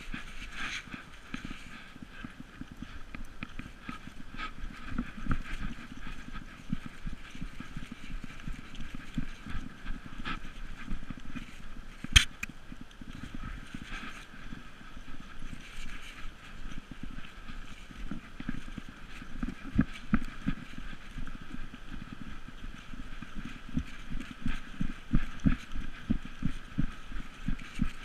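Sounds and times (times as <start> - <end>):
dull thumps of paws and camera: 22.0 - 28.0.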